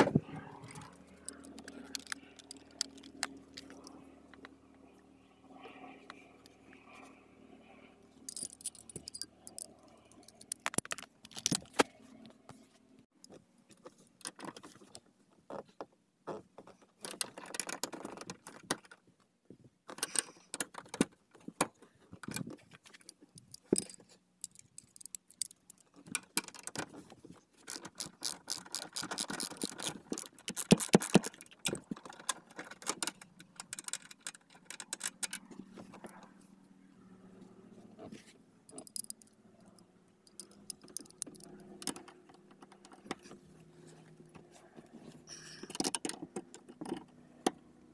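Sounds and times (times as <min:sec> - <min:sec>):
ratchet wrench clicking: 0:08.3 - 0:11.5, 0:38.7 - 0:39.3.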